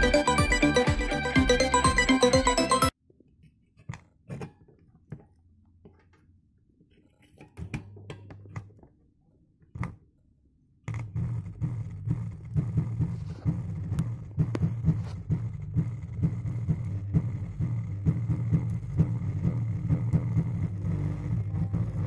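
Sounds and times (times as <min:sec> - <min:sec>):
pulsing deep bass music: 0:00.0 - 0:02.9, 0:12.9 - 0:22.0
low hum: 0:11.6 - 0:22.0.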